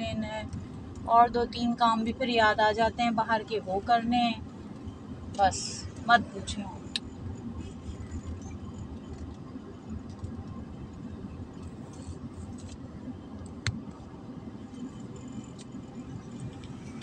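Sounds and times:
car interior rumble: 0.0 - 17.0.

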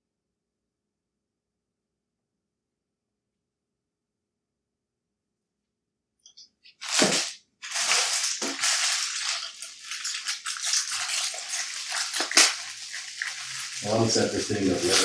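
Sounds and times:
plastic packaging crinkling: 6.7 - 15.0.

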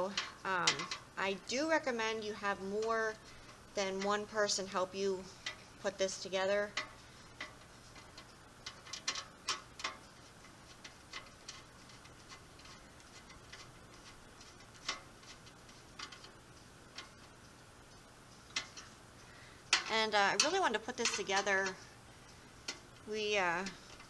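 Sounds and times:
screwdriver clicking on metal: 0.0 - 1.1, 6.6 - 17.3, 19.7 - 21.8.

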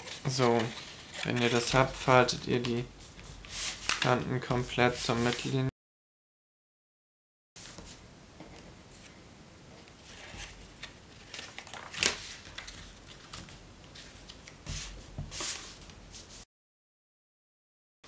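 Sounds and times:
paper rustling and crinkling: 0.0 - 4.3, 10.0 - 16.4.

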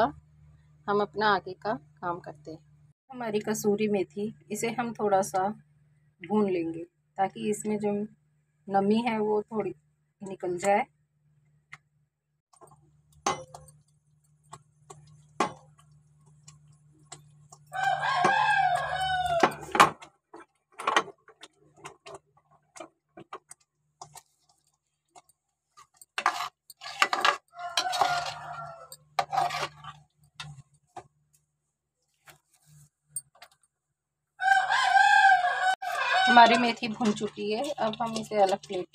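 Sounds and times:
rooster crowing: 17.7 - 19.8, 27.5 - 29.0, 34.4 - 36.7.

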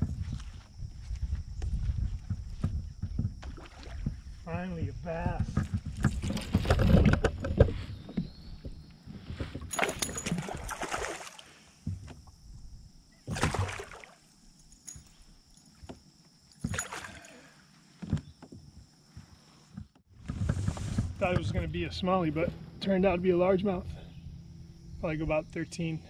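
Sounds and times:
water splashing: 9.7 - 11.7, 13.2 - 14.3, 16.6 - 17.5.

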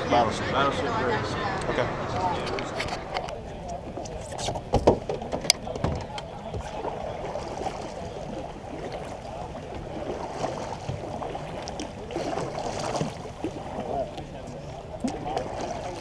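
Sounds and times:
kayak paddle strokes: 2.4 - 16.0
water splashing and trickling: 5.1 - 16.0.

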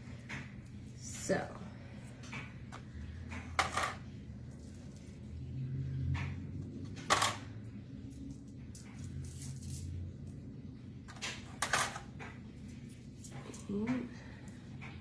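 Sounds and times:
coins clinking: 3.6 - 4.0, 7.1 - 7.4, 8.1 - 10.0.

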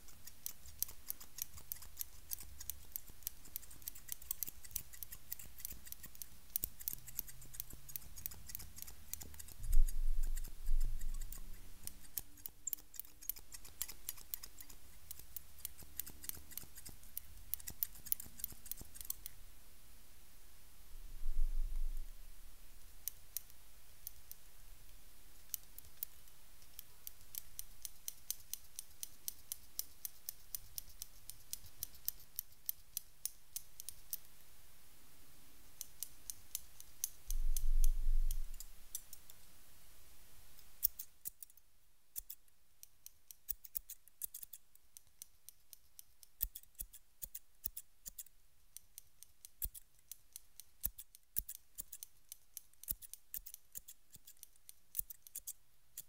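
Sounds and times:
scissors snipping: 0.0 - 19.4, 25.5 - 34.2, 40.8 - 41.6, 42.2 - 56.0.

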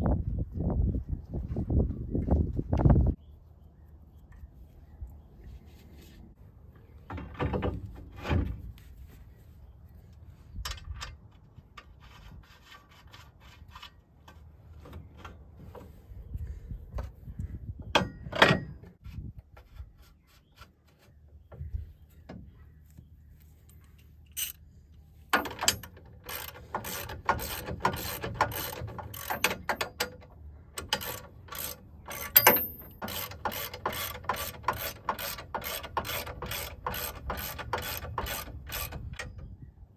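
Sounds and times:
hand ratchet clicking: 25.4 - 30.2, 30.8 - 39.3.

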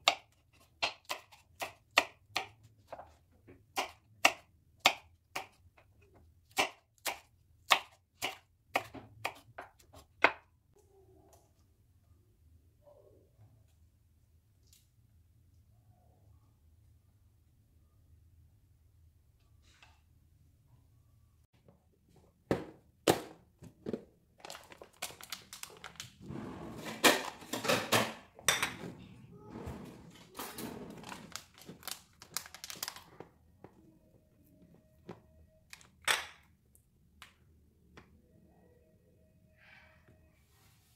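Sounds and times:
film seal crinkling rustle: 24.4 - 26.2, 31.0 - 33.1.

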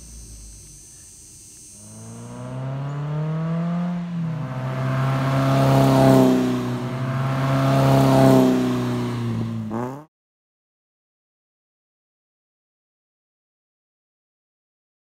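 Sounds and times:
car engine driving past: 1.8 - 10.1.

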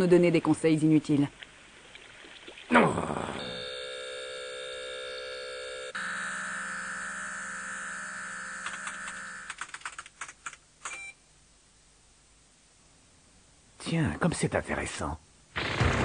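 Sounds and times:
keyboard-like clicks: 8.6 - 11.0.

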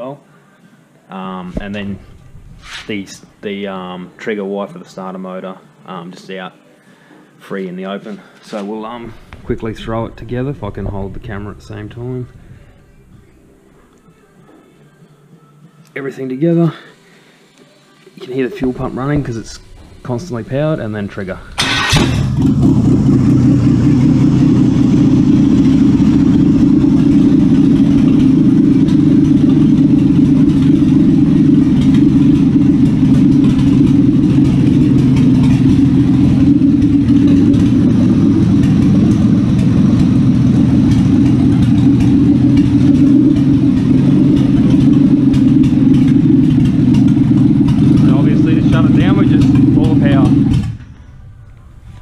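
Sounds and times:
car engine idling: 1.3 - 4.1, 8.9 - 13.9, 18.4 - 52.0.

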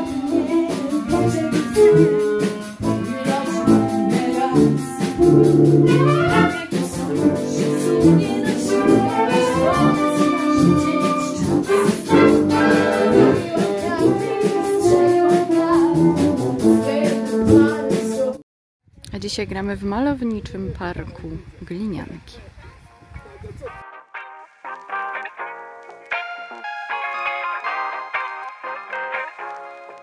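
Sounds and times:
trumpets and trombones: 0.0 - 18.4
wind band playing: 0.0 - 18.4, 23.0 - 29.5.

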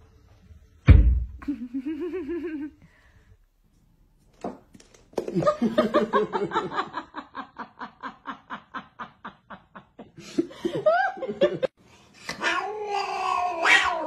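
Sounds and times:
person laughing hard: 1.4 - 2.8.

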